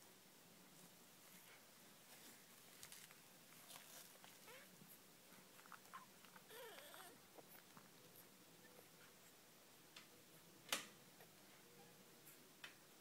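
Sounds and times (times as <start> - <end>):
puppy whimpers: 5.7 - 7.2.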